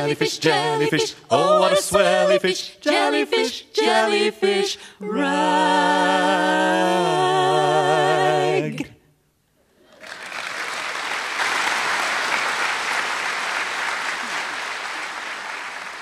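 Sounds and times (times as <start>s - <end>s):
voices singing held chord: 0.0s - 9.0s
audience applauding: 9.9s - 16.0s.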